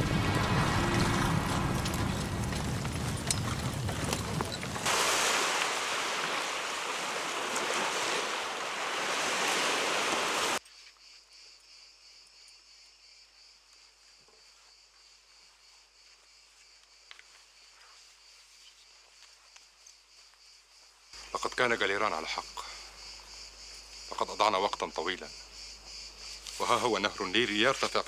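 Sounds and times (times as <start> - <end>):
horse hoofbeats galloping: 0.0 - 4.9
crickets chirping: 0.0 - 28.0
surf washing on beach: 4.6 - 10.6.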